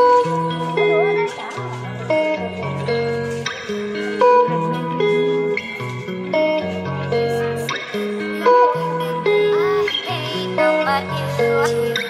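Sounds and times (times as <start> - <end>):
steady bass line: 0.0 - 9.3
plucked guitar melody: 0.0 - 12.0.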